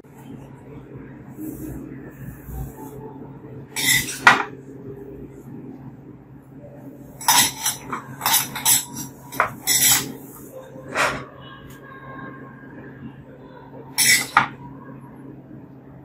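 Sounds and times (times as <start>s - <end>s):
metal ladle scraping ceramic pot: 3.8s - 4.4s, 7.2s - 10.3s, 14.0s - 14.5s.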